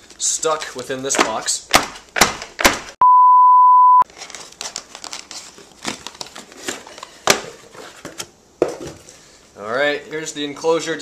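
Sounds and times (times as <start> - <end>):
censor beep: 3.0 - 4.0
packaging rustling and crinkling: 4.1 - 8.2.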